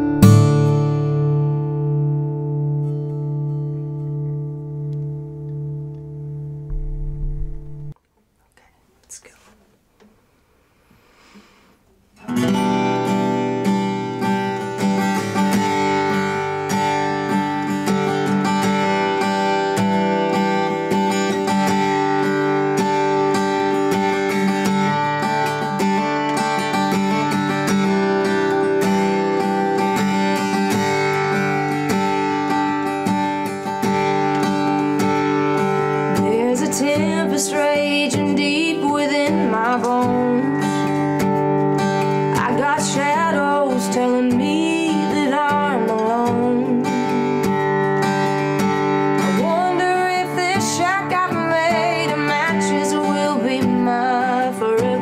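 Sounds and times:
acoustic guitar playing: 0.0s - 8.0s, 10.0s - 55.0s
woman singing: 36.1s - 40.9s, 42.2s - 47.5s, 49.3s - 55.0s.

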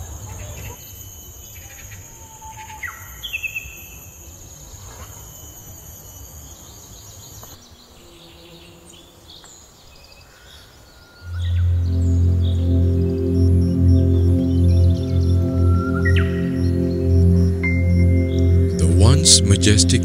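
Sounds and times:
high-pitched insect drone: 0.0s - 8.8s, 10.5s - 20.0s.

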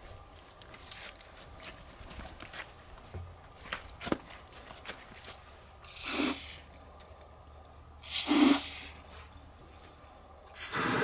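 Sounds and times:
aerosol spray hissing: 5.9s - 6.6s, 8.0s - 9.0s, 10.6s - 11.0s.

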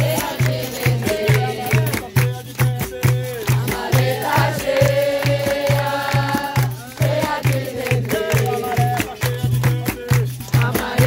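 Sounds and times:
group call-and-response singing: 0.0s - 11.0s
hand claps: 0.0s - 11.0s
hand drum beat: 0.0s - 11.0s.

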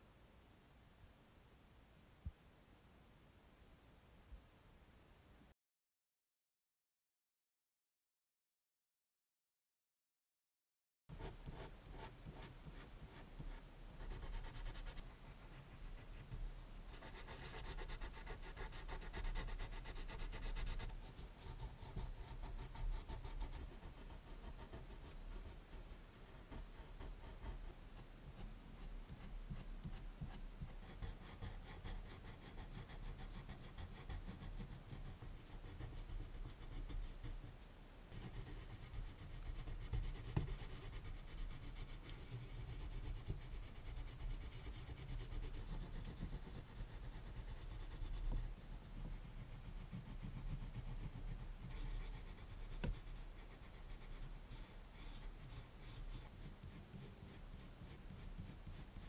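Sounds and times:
colored pencil scratching on paper: 11.1s - 37.5s, 38.1s - 59.0s.

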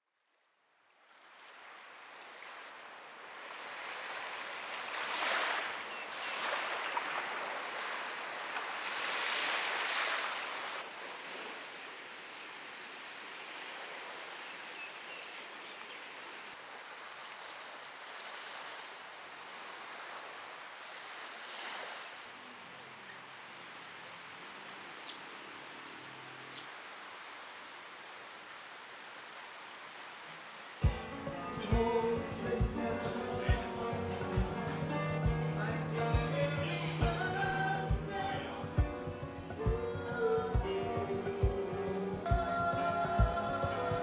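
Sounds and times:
waves breaking on beach: 1.0s - 35.4s.

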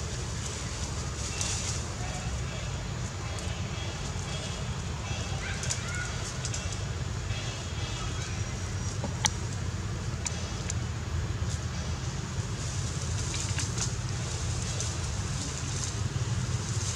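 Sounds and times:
leafy branches rustling: 0.0s - 7.6s, 11.3s - 16.9s.

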